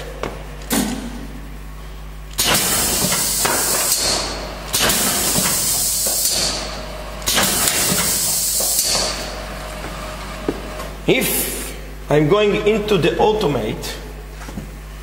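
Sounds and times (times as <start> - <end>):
machine running with hiss: 0.0 - 12.0.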